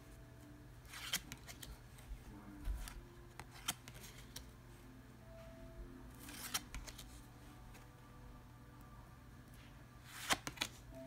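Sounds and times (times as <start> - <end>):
cards sliding: 0.8 - 2.1, 2.8 - 4.5, 6.2 - 7.3, 10.0 - 10.8
soft card snaps: 2.8 - 4.5, 6.3 - 7.1, 10.1 - 10.8.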